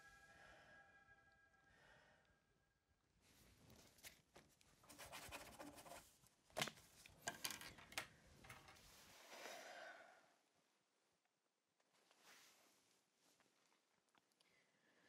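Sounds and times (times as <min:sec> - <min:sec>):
pencil scratching on paper: 0:04.9 - 0:06.1.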